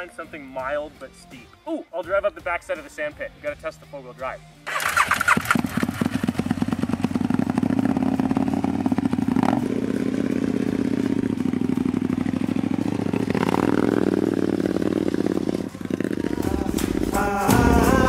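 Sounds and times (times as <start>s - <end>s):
kart engine running at low revs: 4.7s - 18.0s.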